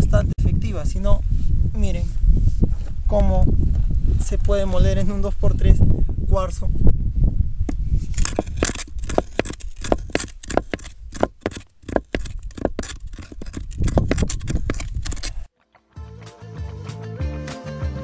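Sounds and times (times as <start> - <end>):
stone grinding crunching quartz: 8.0 - 15.5.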